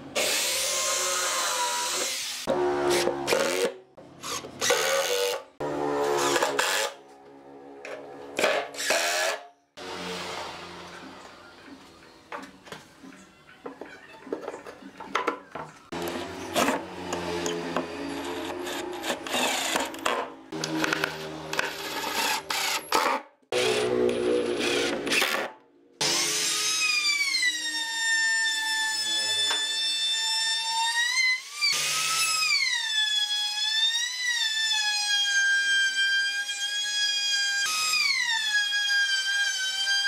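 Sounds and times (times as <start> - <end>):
power drill whirring: 15.9 - 23.0.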